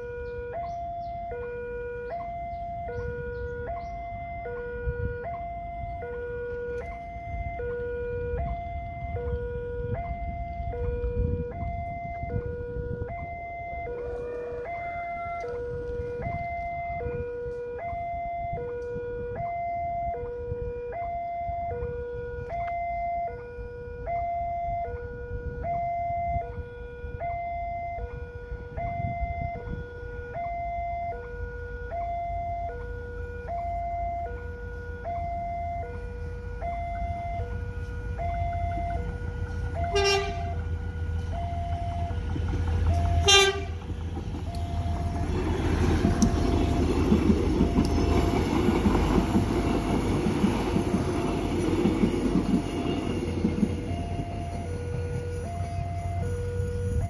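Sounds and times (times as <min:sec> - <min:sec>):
level crossing alarm chiming: 0:00.0 - 0:18.8, 0:19.4 - 0:57.0
train rumbling: 0:01.9 - 0:17.7, 0:28.0 - 0:57.0
train horn blasts: 0:32.8 - 0:45.2
train rushing past: 0:34.4 - 0:57.0.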